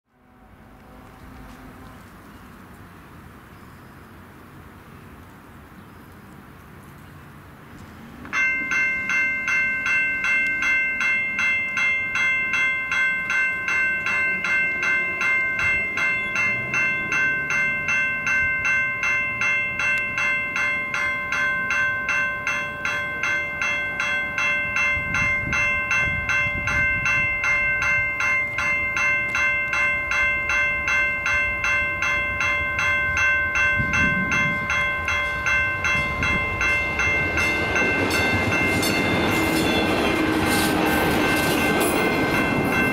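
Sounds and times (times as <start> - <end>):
crossing warning bell ringing: 8.2 - 42.9.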